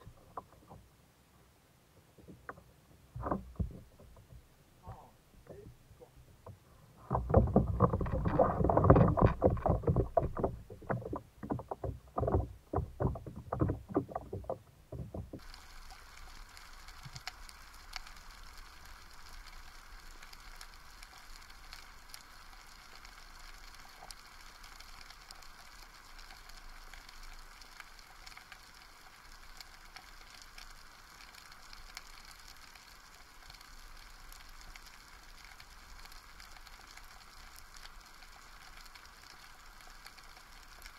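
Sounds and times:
faint underwater hiss: 0.0s - 7.2s, 15.4s - 40.9s
water splashing against kayak: 2.2s - 4.5s, 6.3s - 15.8s.

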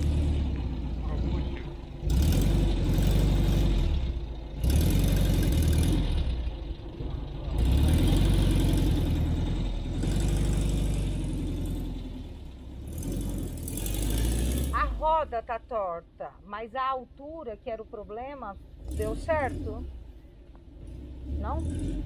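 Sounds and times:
van engine pulling away: 0.0s - 15.7s, 18.6s - 22.0s.

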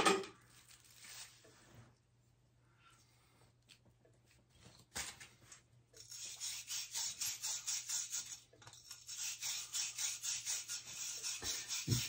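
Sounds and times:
scrubbing copper fitting by hand: 6.0s - 12.0s.

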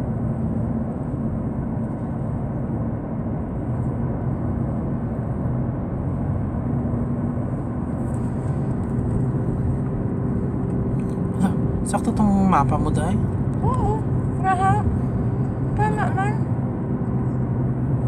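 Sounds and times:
car cabin road rumble: 0.0s - 18.0s.

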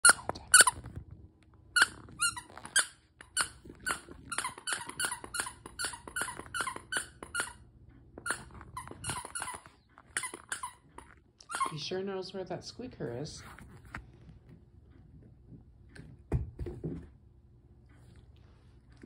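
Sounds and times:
dog toy squeaking: 0.0s - 0.8s, 1.8s - 7.6s, 8.2s - 11.8s.

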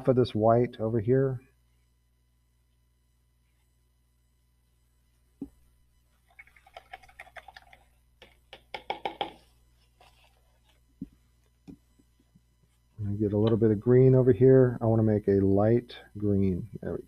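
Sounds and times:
rapid tapping of small hard objects: 6.4s - 9.4s
knock: 8.8s - 9.4s.

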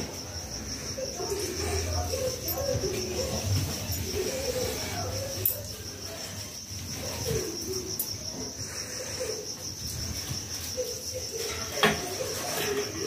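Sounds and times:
insect trilling: 0.0s - 13.0s
bird cooing: 1.3s - 5.4s.

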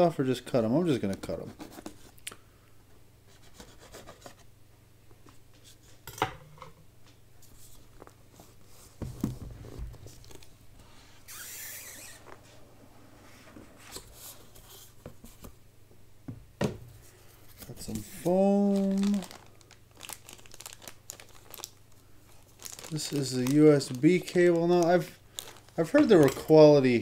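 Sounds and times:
cardboard sliding hiss: 11.0s - 15.5s.

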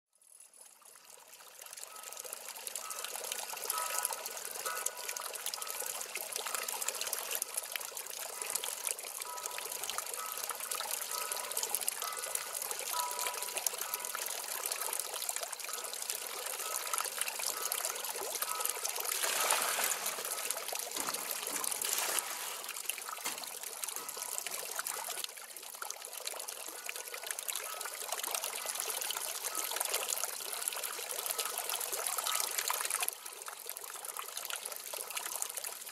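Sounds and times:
water pouring into metal bowl: 1.6s - 25.3s.

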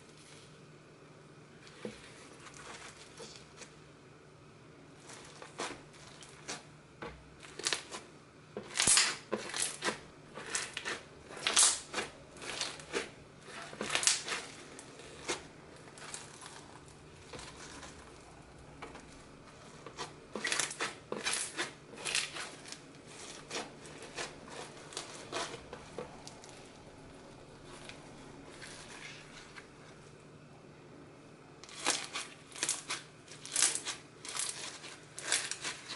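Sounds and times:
slime crunching and popping: 8.6s - 29.4s, 31.6s - 35.9s.

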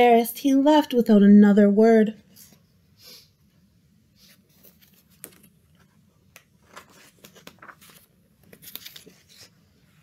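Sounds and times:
book page turning: 4.2s - 9.7s.

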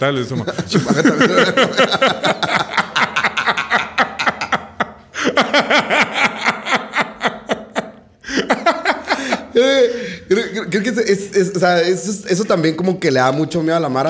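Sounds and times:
man laughing hard: 0.4s - 10.2s.

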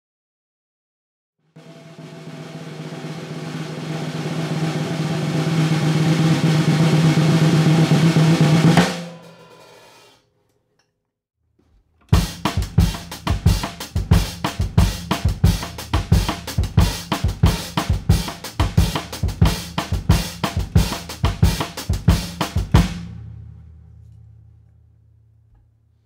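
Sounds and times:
snare drum strokes: 1.6s - 10.2s, 12.1s - 23.1s.

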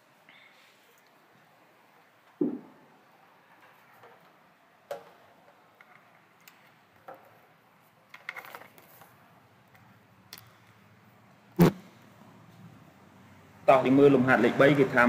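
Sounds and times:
rattle of small clicks: 8.1s - 9.2s.

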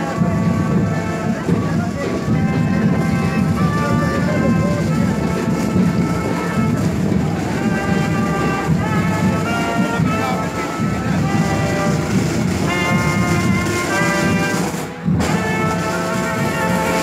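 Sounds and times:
brass band playing a march: 0.0s - 17.0s
crowd walking in the street: 0.0s - 17.0s.

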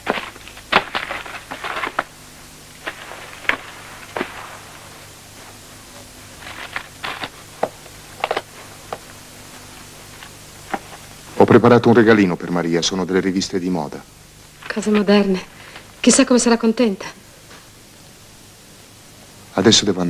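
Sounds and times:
faint steady hum: 0.0s - 20.0s
books and papers handled on desk: 5.4s - 11.0s.

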